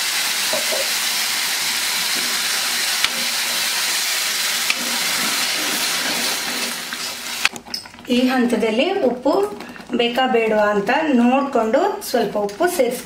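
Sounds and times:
chutney sizzling in a pan: 0.0 - 7.5.

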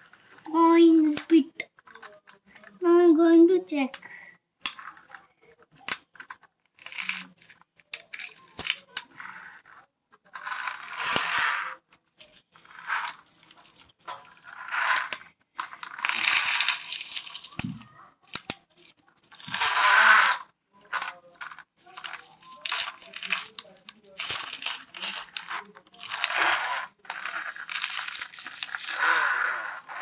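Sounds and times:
coins clinking and scraping: 6.2 - 17.6, 19.2 - 30.0.

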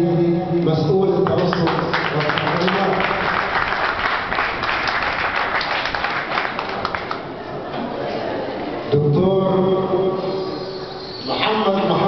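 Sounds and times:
audience applauding: 1.2 - 7.4.

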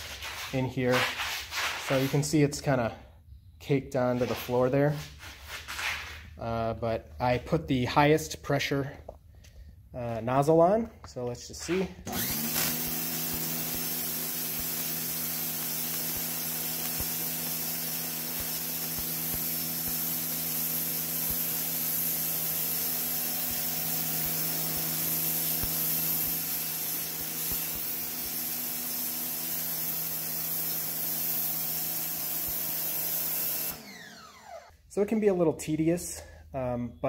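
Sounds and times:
pressure washer motor hum: 11.7 - 34.7
water jet hissing on concrete: 12.2 - 33.7.

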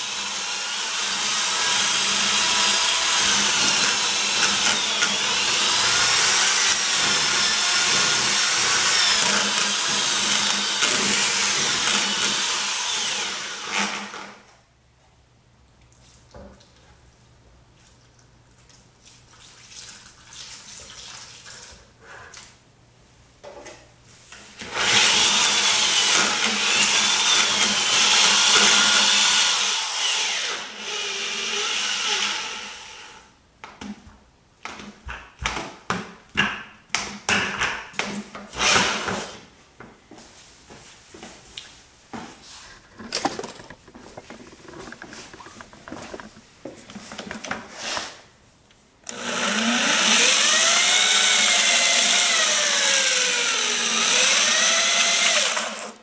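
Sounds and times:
electric drill mixing mortar: 0.0 - 14.4, 24.6 - 33.3, 38.6 - 39.4, 42.7 - 47.6, 49.1 - 56.0.

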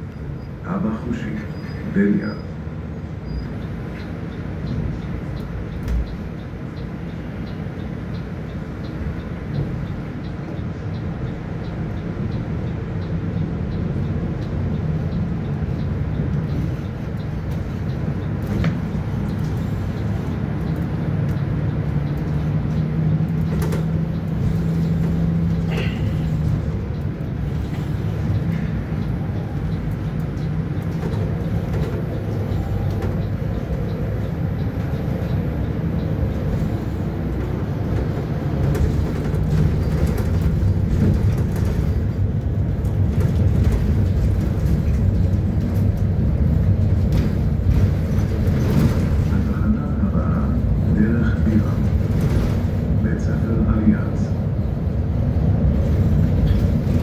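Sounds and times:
bus engine and road noise: 0.0 - 57.0
sharp rattles and clicks: 14.0 - 49.9.

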